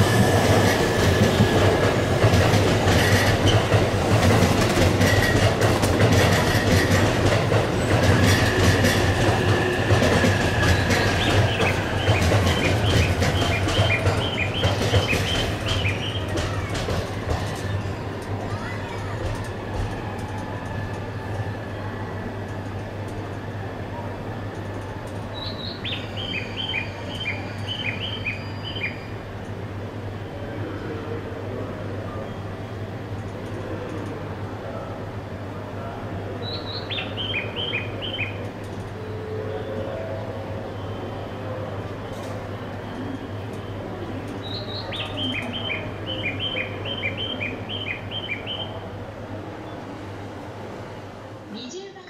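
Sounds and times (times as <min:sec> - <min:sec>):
station noise: 0:00.0 - 0:30.2.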